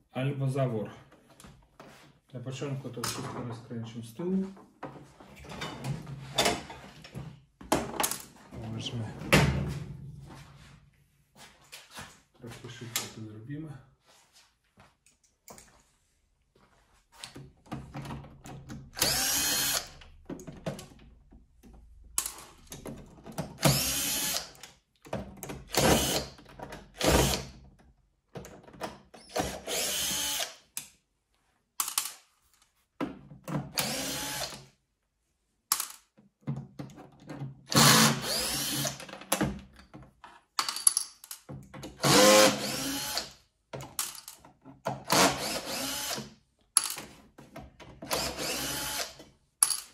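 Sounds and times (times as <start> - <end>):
cordless screwdriver running: 19.0 - 20.0, 23.6 - 24.5, 29.4 - 30.6, 33.8 - 34.6, 37.7 - 39.0, 42.0 - 43.3, 45.2 - 46.2, 48.1 - 49.2.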